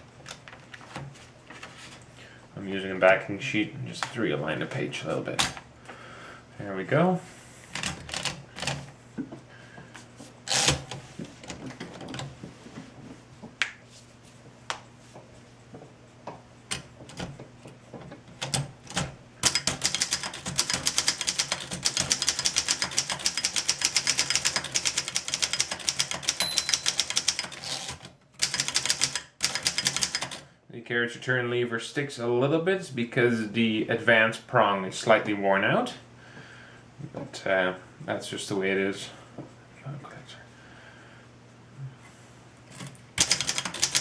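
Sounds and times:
fast typewriter typing: 0:07.7 - 0:08.8, 0:10.5 - 0:12.2, 0:18.4 - 0:30.5, 0:42.8 - 0:44.0
typewriter clicks and knocks: 0:18.3 - 0:30.4, 0:42.8 - 0:44.0.

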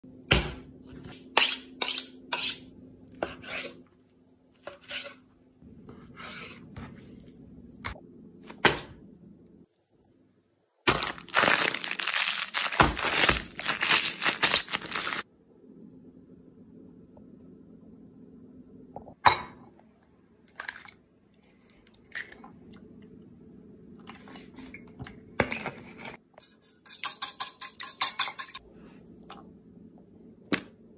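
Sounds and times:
plastic packet crinkling and tearing: 0:10.9 - 0:15.2.

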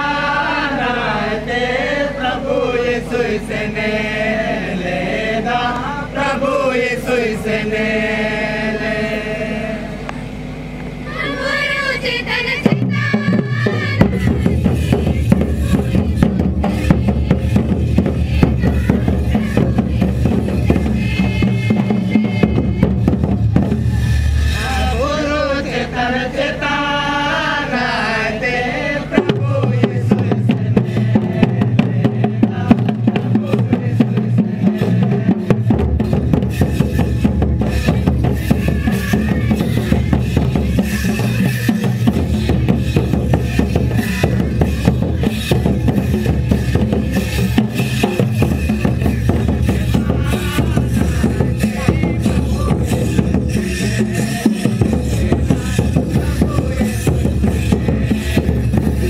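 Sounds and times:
group singing: 0:00.0 - 0:10.4, 0:11.0 - 0:59.0
drum rhythm: 0:12.3 - 0:26.8, 0:28.3 - 0:59.0.

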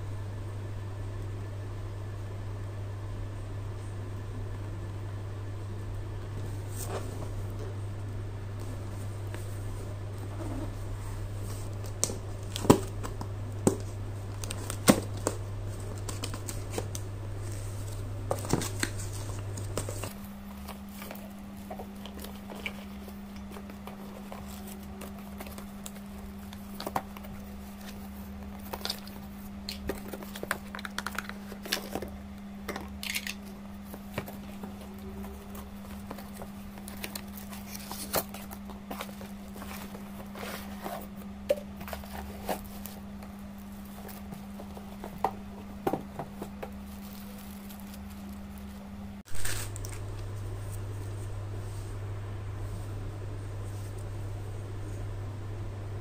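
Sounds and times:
steady low hum: 0:00.0 - 0:56.0
cardboard packaging rustling: 0:08.6 - 0:51.3
plastic bags crinkling: 0:11.2 - 0:50.2.

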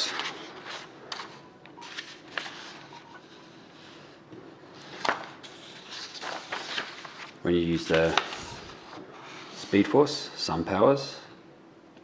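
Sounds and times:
paper sheet rustling: 0:00.0 - 0:04.1, 0:04.8 - 0:09.9.

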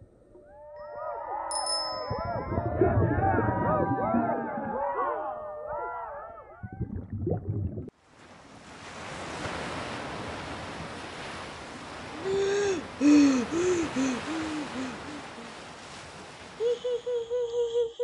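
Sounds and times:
ocean waves washing: 0:02.0 - 0:05.0, 0:07.3 - 0:17.4
underwater bubbling and gurgling: 0:02.1 - 0:04.9, 0:06.5 - 0:07.9
person gasping for breath: 0:12.2 - 0:15.4.

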